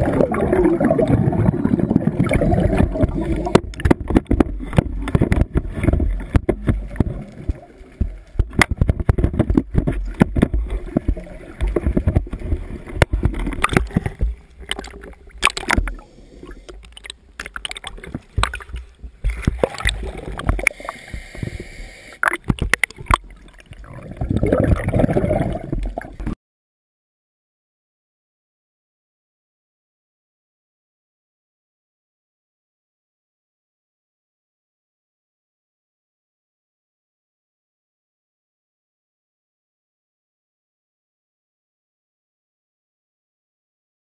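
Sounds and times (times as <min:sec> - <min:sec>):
water sloshing and gurgling: 0:00.0 - 0:26.4
sharp knocks and clicks: 0:03.5 - 0:12.4.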